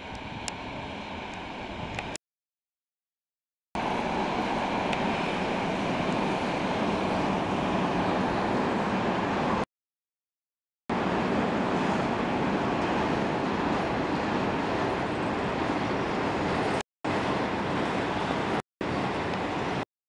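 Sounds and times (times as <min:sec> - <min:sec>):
freight train rumbling past: 0:03.8 - 0:09.6, 0:10.9 - 0:19.8.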